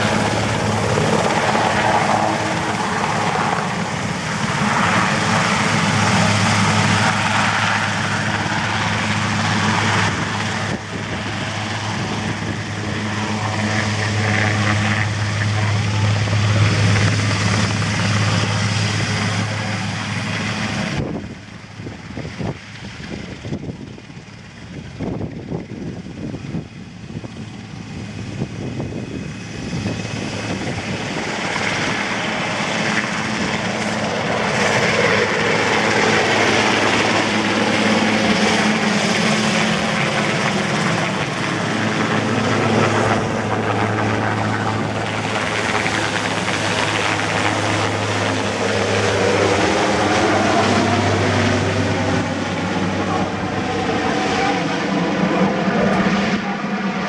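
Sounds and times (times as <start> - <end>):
helicopter flying low overhead: 0.0 - 57.0.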